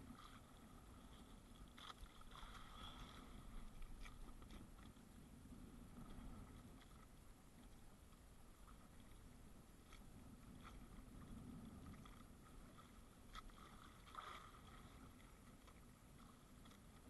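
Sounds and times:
water and wind around boat: 0:00.0 - 0:17.0.

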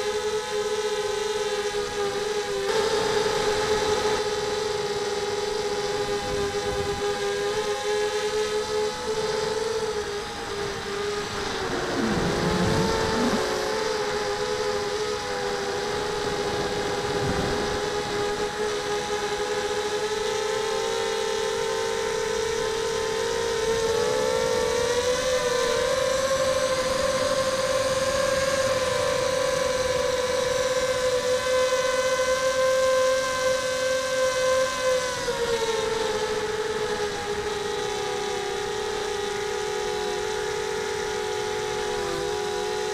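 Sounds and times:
quadcopter motors whining: 0:00.0 - 0:42.9
wind buffeting microphone: 0:08.5 - 0:18.6, 0:24.8 - 0:31.2.

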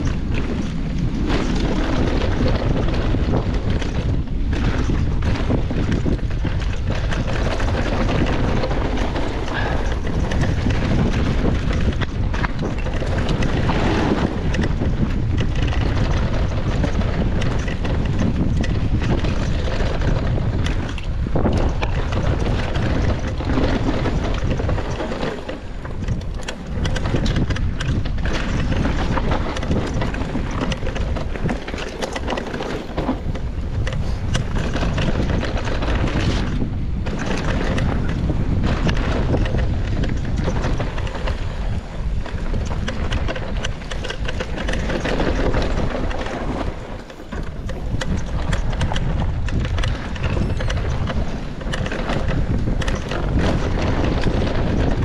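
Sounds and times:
bike knocks and rattles: 0:00.0 - 0:55.0
wind buffeting microphone: 0:00.0 - 0:55.0
tyre roar: 0:09.4 - 0:10.2.

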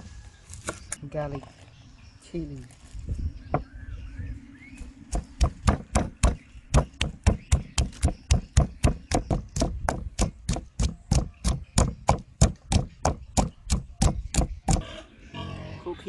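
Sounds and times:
wooden pestle pounding in mortar: 0:05.1 - 0:14.8.

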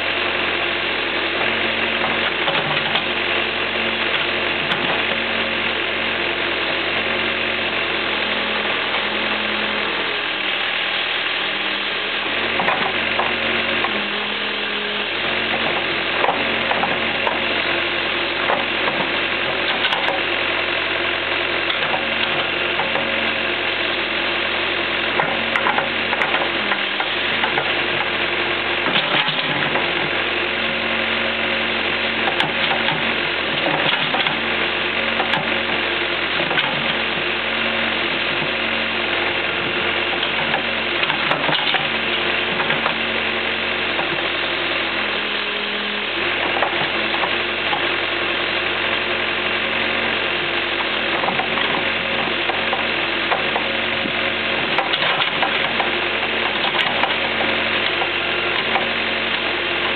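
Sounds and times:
backhoe engine running: 0:00.0 - 0:59.9
hydraulic boom working: 0:00.0 - 0:59.9.

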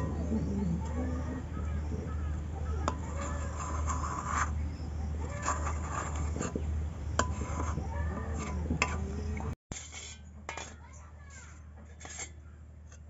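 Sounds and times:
metal spatula scraping a pan: 0:02.8 - 0:13.0.

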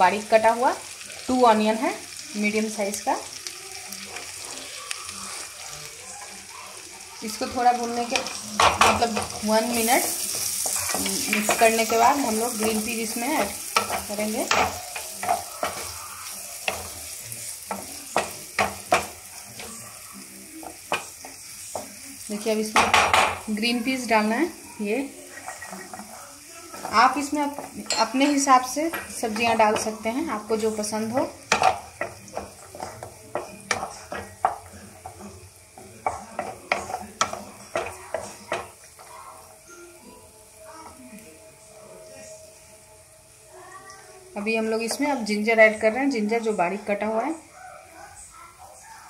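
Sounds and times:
onions sizzling in butter: 0:00.0 - 0:49.0
wooden spatula scraping and stirring: 0:07.3 - 0:19.9, 0:25.2 - 0:39.4.

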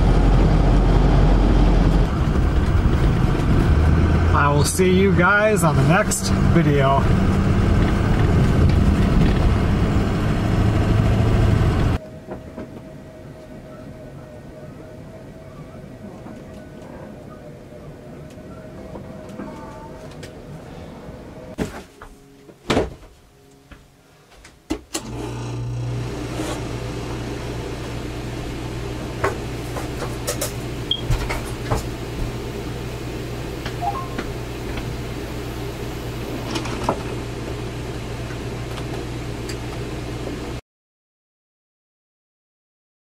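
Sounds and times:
electric appliance hum: 0:00.0 - 0:12.0, 0:25.0 - 0:40.6.

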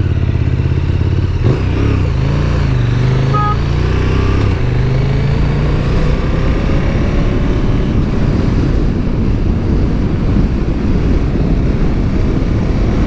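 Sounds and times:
motorcycle engine accelerating: 0:00.0 - 0:13.0
wind rush on microphone: 0:04.2 - 0:13.0.

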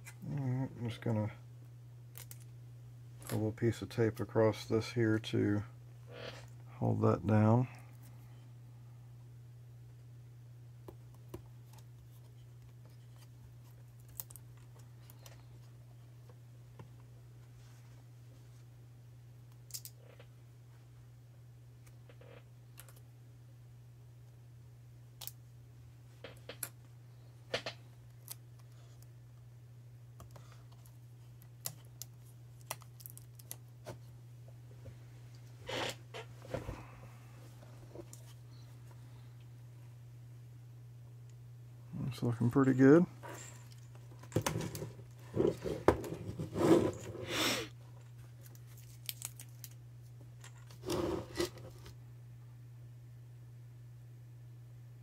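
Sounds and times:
steady low hum: 0:00.0 - 0:55.0
adhesive tape clicks and crinkles: 0:30.2 - 0:33.6, 0:48.4 - 0:49.8
rustling scrape: 0:45.2 - 0:47.4, 0:50.7 - 0:51.9.

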